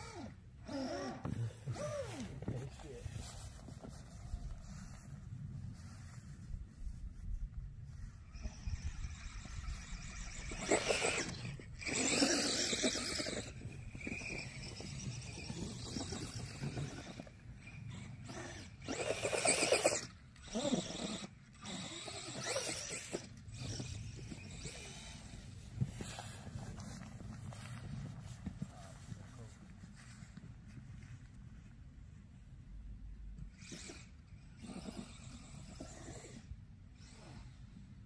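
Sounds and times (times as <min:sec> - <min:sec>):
electric motor whining: 0:00.0 - 0:03.1, 0:08.3 - 0:26.4
tires churning snow: 0:08.2 - 0:20.1.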